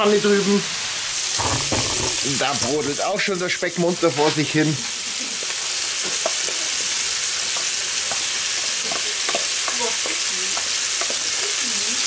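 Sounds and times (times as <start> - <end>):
bacon sizzling in a pan: 0.0 - 12.0
wooden spatula scraping pan: 1.3 - 2.9.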